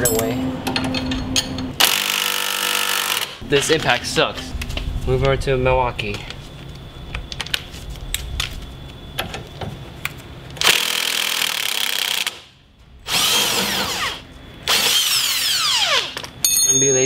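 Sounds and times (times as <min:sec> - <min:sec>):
impact wrench bursts: 0:01.8 - 0:03.4, 0:13.1 - 0:16.2.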